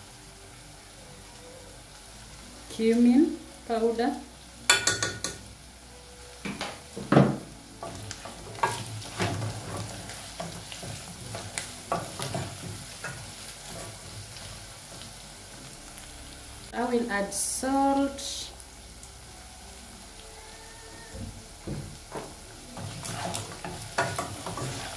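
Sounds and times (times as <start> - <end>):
meat sizzling: 0.0 - 24.9
wooden spoon scraping pot: 22.8 - 24.9.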